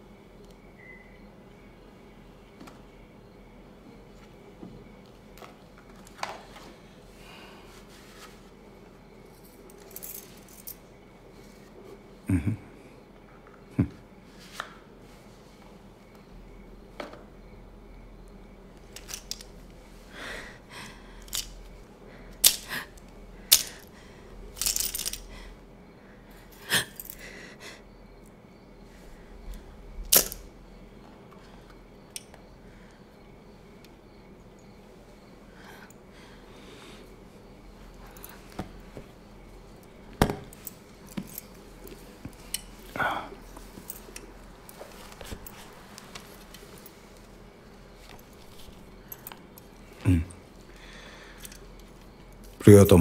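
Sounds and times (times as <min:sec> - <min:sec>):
light clicks and clinks: 0:24.6 - 0:25.3, 0:39.8 - 0:42.9, 0:48.0 - 0:49.9, 0:51.3 - 0:52.6.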